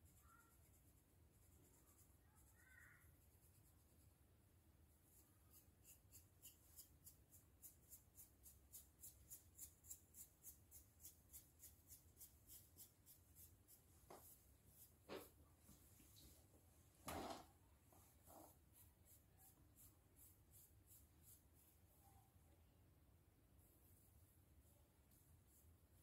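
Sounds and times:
fingernails scratching scalp: 0:05.5 - 0:14.9.

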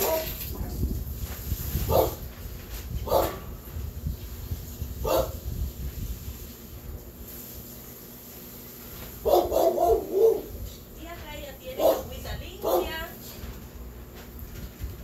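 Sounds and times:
dog barking: 0:00.0 - 0:00.4, 0:01.9 - 0:02.2, 0:03.0 - 0:03.4, 0:05.0 - 0:05.4, 0:09.2 - 0:10.5, 0:11.8 - 0:13.1.

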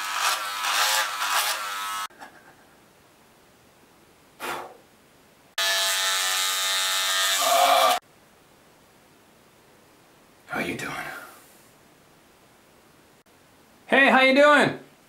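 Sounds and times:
electric beard trimmer buzzing: 0:00.0 - 0:02.1, 0:05.6 - 0:08.0.

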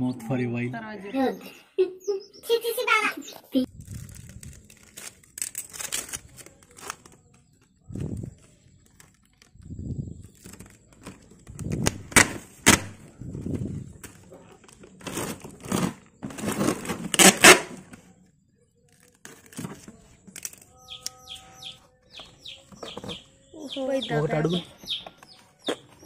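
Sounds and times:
chicks peeping: 0:02.0 - 0:03.5, 0:20.8 - 0:26.0
packing tape ripping off roll: 0:03.8 - 0:07.3, 0:10.3 - 0:12.9, 0:14.8 - 0:18.0.

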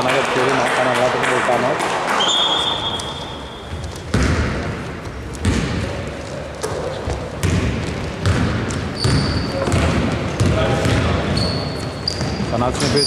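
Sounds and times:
basketball bouncing on hardwood: 0:03.7 - 0:05.9, 0:06.6 - 0:11.2.

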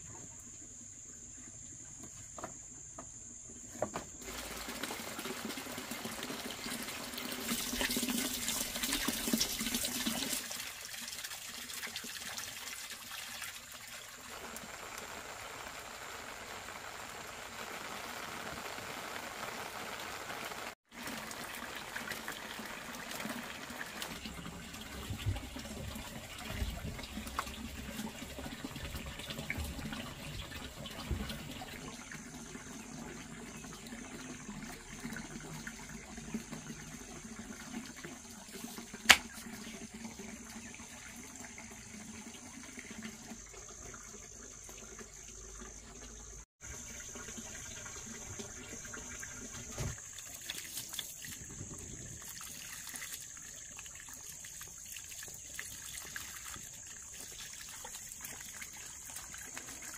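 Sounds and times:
water running from hose: 0:04.2 - 0:59.9
water splashing on wet ground: 0:38.5 - 0:39.6, 0:49.6 - 0:59.9.

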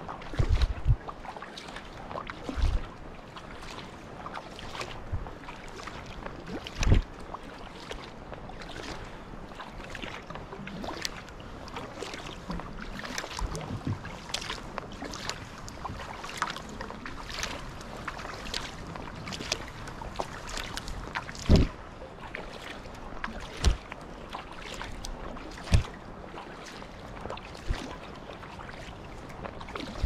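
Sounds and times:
kayak paddle stroking water: 0:00.0 - 0:30.0
water dripping off paddle: 0:10.8 - 0:21.7
low thump: 0:21.5 - 0:21.8.

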